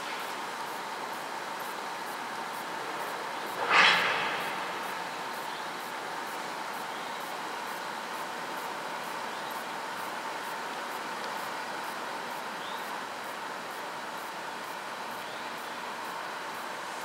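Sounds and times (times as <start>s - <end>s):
steady background hiss: 0.0s - 17.0s
short loud hiss: 3.4s - 5.5s.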